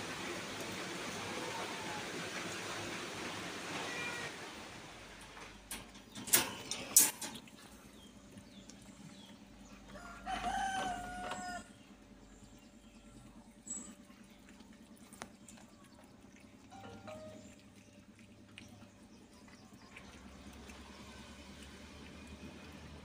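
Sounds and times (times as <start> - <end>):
rooster crowing: 9.9 - 11.7.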